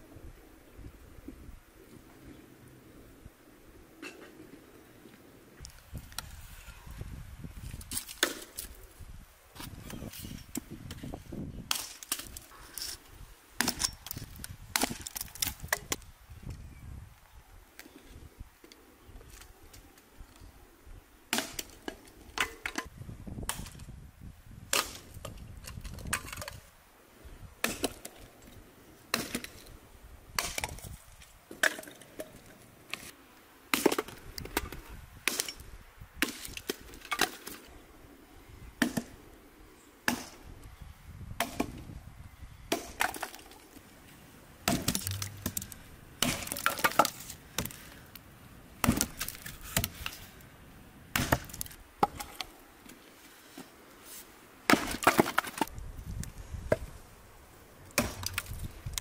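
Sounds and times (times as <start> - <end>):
axe chopping wood: 13.6 - 14.0, 14.7 - 16.0, 21.3 - 21.8, 24.7 - 25.1, 27.6 - 28.1, 29.1 - 29.6, 30.4 - 30.8, 38.8 - 39.2, 40.1 - 40.4, 41.4 - 41.8, 42.7 - 43.5, 44.6 - 47.8, 48.8 - 50.1, 51.1 - 52.4, 54.7 - 55.7, 58.0 - 58.6
wood cracking and splintering: 13.6 - 16.0, 44.6 - 48.0, 48.8 - 50.2, 51.1 - 52.5, 54.7 - 56.3, 58.0 - 59.0.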